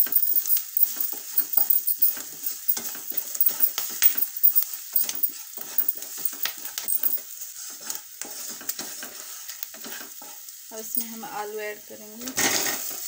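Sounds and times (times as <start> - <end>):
masala frying in oil: 0.0 - 13.0
wooden spatula scraping a pan: 7.2 - 11.2, 12.3 - 13.0.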